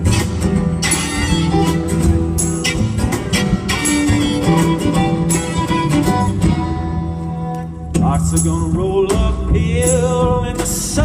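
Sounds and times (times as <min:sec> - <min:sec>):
violin: 0:00.0 - 0:08.0
acoustic guitar: 0:00.0 - 0:11.0
drums: 0:00.0 - 0:11.0
upright bass: 0:00.0 - 0:11.0.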